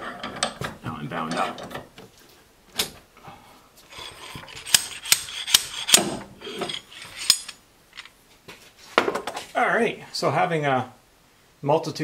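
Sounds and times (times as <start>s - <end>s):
metal scraping: 3.8s - 8.1s
sharp tool clicks: 4.6s - 6.1s.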